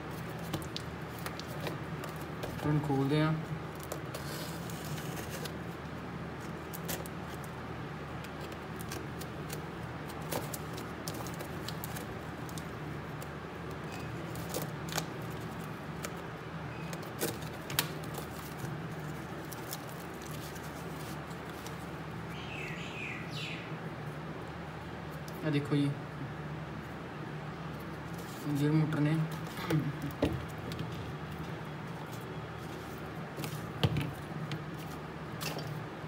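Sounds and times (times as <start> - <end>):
low background hum: 0.0 - 36.0
cardboard clicks scrapes and crinkles: 3.7 - 5.8, 16.8 - 21.9.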